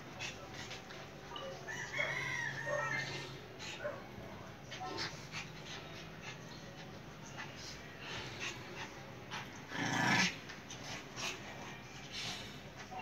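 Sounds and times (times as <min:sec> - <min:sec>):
dogs growling: 0:07.8 - 0:11.8.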